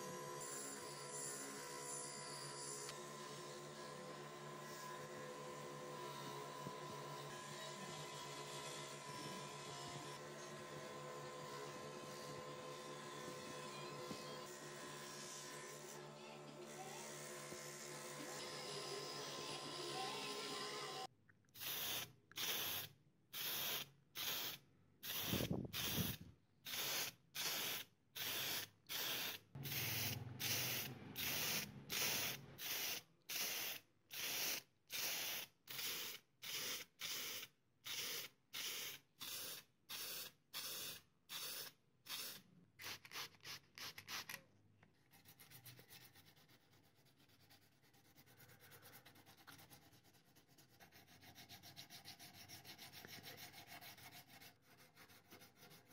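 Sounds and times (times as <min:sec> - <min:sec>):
aerosol spray can hissing: 0:21.6 - 0:44.3
sandpaper scratching: 0:45.1 - 0:55.9.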